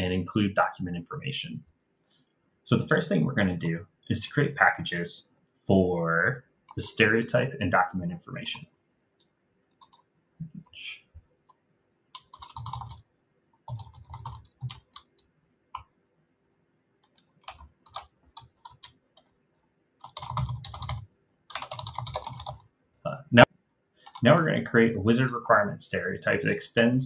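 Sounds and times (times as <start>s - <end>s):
computer keyboard typing: 9.7s - 10.1s, 12.1s - 13.0s, 13.6s - 15.9s, 17.0s - 19.3s, 20.0s - 22.7s, 24.0s - 24.3s.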